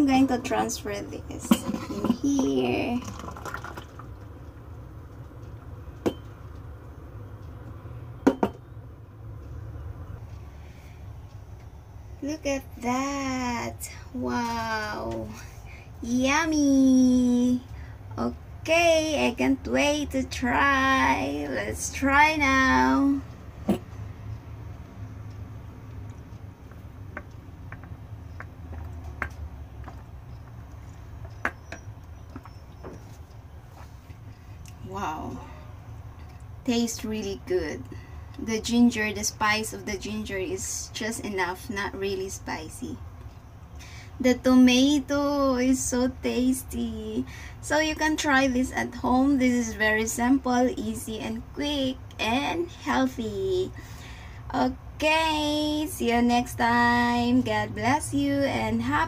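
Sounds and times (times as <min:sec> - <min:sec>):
low steady hum: 0:00.0 - 0:59.0
glass knocking on counter: 0:08.2 - 0:08.6.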